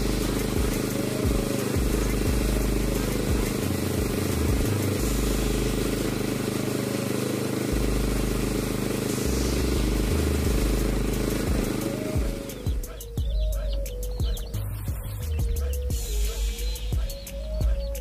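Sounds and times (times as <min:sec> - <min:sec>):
spray gun hissing: 0:00.0 - 0:13.0
air compressor humming: 0:00.0 - 0:18.0.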